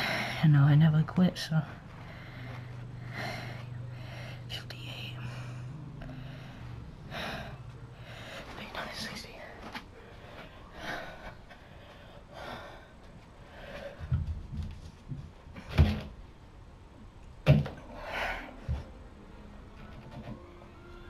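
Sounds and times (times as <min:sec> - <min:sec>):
hard breathing: 0:00.0 - 0:00.5, 0:01.6 - 0:14.3, 0:17.8 - 0:18.9.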